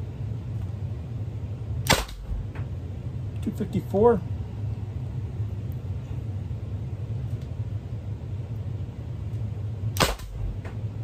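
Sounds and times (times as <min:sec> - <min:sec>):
steady low hum: 0:00.0 - 0:11.0
launcher firing pop: 0:01.8 - 0:02.5, 0:10.0 - 0:10.5.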